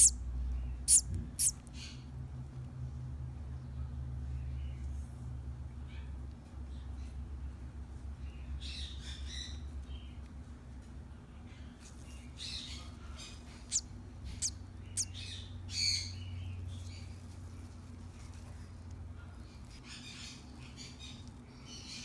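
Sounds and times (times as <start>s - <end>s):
sharp chirps: 0.9s - 1.5s
chick peeping: 0.9s - 1.6s, 13.6s - 15.2s.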